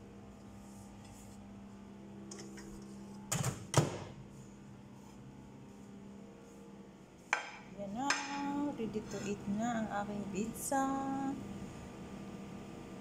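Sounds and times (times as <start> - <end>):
low steady hum: 4.1 - 13.0.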